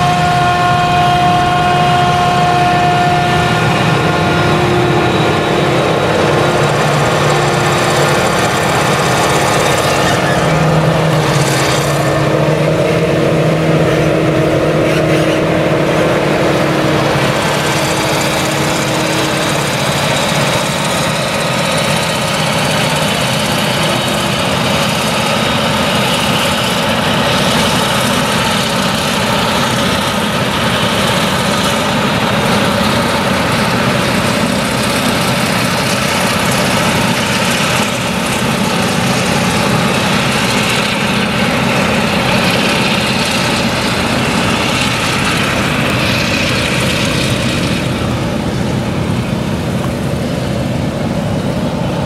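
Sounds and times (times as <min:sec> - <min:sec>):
forage harvester running under load: 0:00.0 - 0:52.0
tractor engines: 0:00.0 - 0:52.0.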